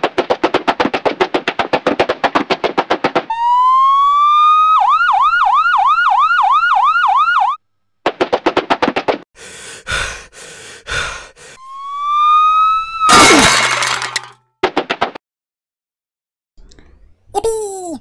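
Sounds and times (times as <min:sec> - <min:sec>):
rapid clattering taps: 0:00.0 - 0:03.3
police siren wailing and yelping: 0:03.3 - 0:07.6, 0:11.6 - 0:13.1.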